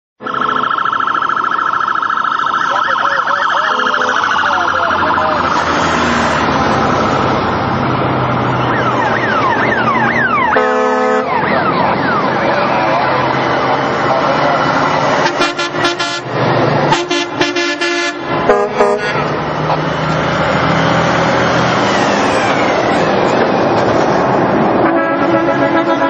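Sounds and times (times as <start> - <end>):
sirens wailing and yelping: 0.2 - 26.0
traffic and engine noise: 0.2 - 26.0
deep horn blast: 10.4 - 11.5, 15.1 - 19.5, 24.7 - 26.0.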